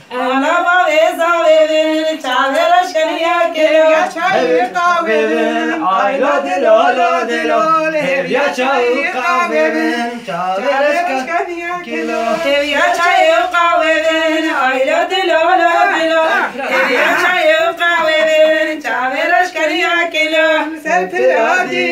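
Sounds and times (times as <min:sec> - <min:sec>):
voices singing unaccompanied: 0:00.0 - 0:21.9.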